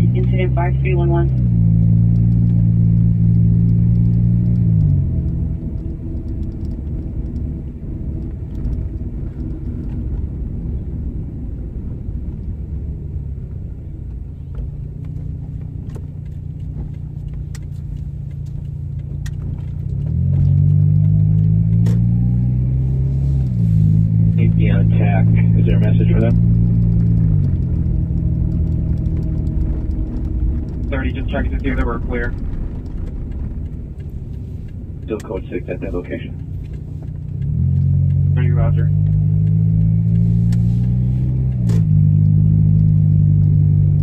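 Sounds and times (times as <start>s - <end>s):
car engine drone: 0.0s - 44.0s
tyre and road rumble: 0.0s - 44.0s
light clicks and rattles: 25.6s - 43.6s.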